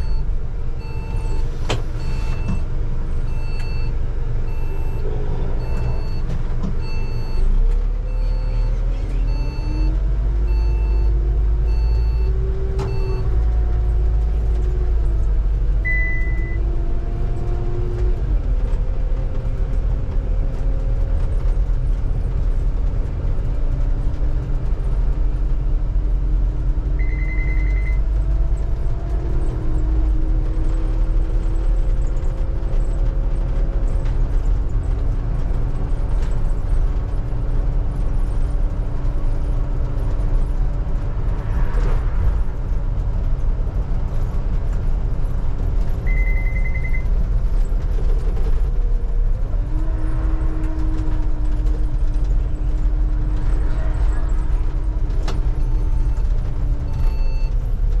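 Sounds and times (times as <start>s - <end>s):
bus engine rumble: 0.0s - 58.0s
short beeps: 27.0s - 28.0s, 46.1s - 47.1s.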